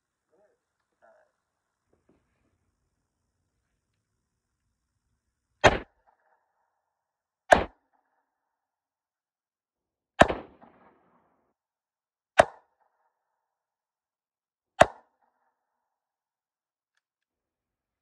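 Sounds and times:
revolver gunshots: 0:05.6 - 0:06.4, 0:07.5 - 0:08.0, 0:10.2 - 0:11.4.

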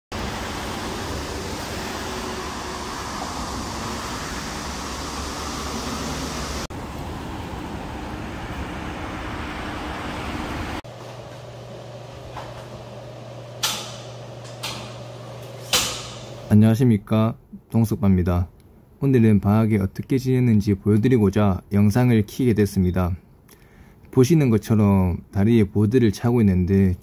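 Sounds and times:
low hum: 0:00.1 - 0:16.5.

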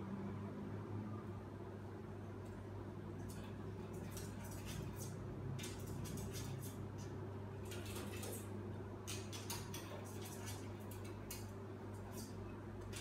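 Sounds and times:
prairie dog gnawing and crunching: 0:03.2 - 0:13.0.

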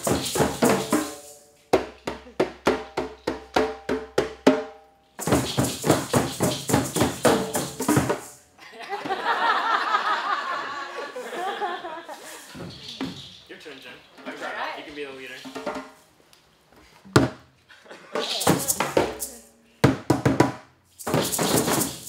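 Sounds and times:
hand drums playing: 0:00.0 - 0:08.4, 0:18.2 - 0:19.4
people laughing: 0:08.6 - 0:12.6, 0:17.7 - 0:18.8
voices: 0:18.0 - 0:19.7.

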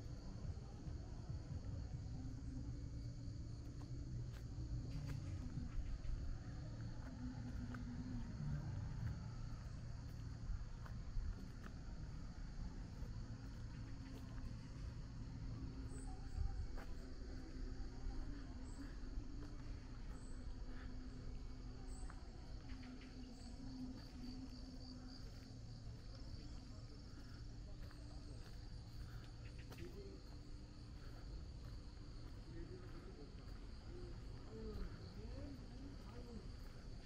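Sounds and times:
low background rumble: 0:00.0 - 0:37.0
insects trilling: 0:05.4 - 0:37.0.

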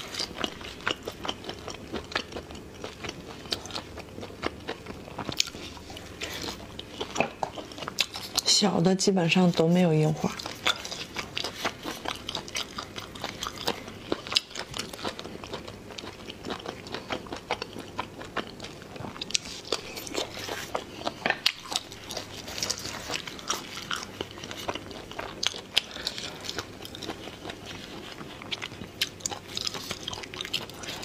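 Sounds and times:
sucking and chewing snails: 0:00.0 - 0:31.0.

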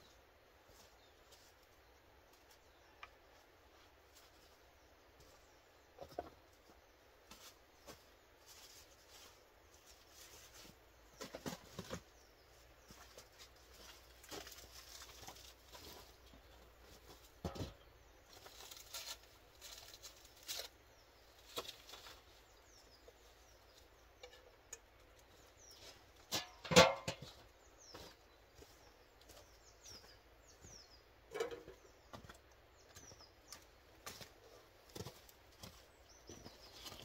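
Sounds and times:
small birds chirping: 0:00.0 - 0:37.0
wood knocking and clattering: 0:26.4 - 0:27.4.

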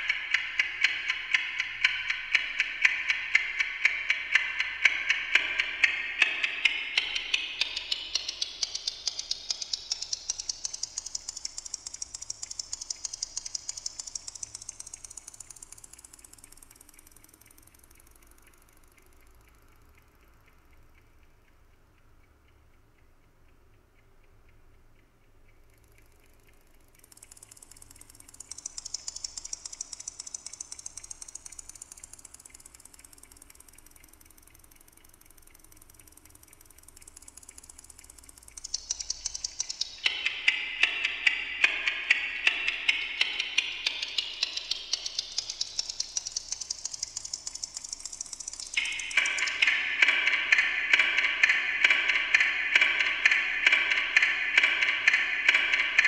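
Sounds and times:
clock ticking through delay: 0:00.0 - 0:56.0.

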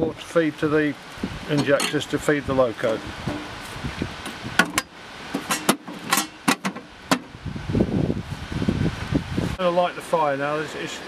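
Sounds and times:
clicks and knocks on metal: 0:02.8 - 0:03.6, 0:04.6 - 0:07.3
low rustling rumble: 0:07.0 - 0:09.6.

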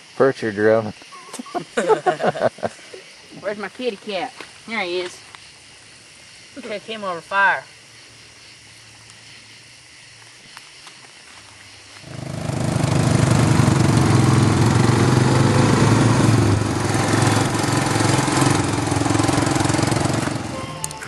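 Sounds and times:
lawn tractor engine running: 0:12.1 - 0:21.0.

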